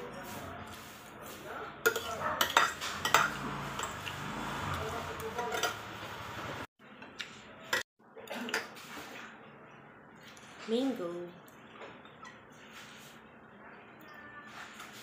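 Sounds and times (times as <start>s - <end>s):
cutlery clinking on ceramic plate: 1.8s - 4.0s, 5.4s - 5.9s.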